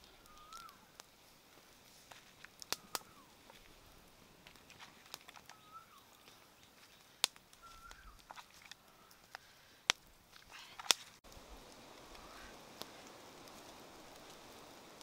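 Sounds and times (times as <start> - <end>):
fire crackling and popping: 0.0 - 15.0
faint wavering chirps: 5.5 - 6.4.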